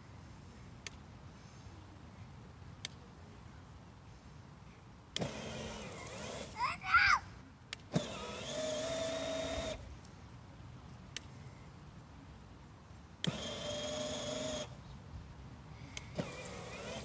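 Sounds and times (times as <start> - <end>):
toy motor whirring: 5.2 - 6.8, 7.9 - 9.8, 13.2 - 14.8, 16.0 - 17.0.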